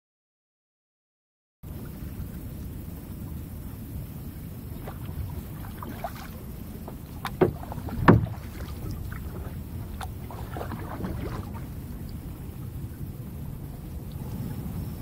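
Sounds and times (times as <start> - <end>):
low steady rumble: 1.6 - 15.0
paddle strokes splashing: 1.7 - 15.0
loud splashes: 7.4 - 12.1.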